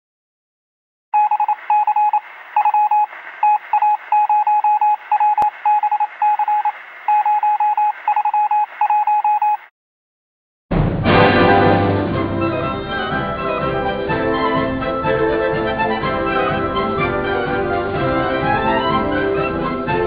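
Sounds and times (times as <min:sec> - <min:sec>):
morse code beeps: 0:01.2 - 0:09.7
radio static hiss: 0:01.4 - 0:09.7
orchestral music: 0:10.8 - 0:20.0.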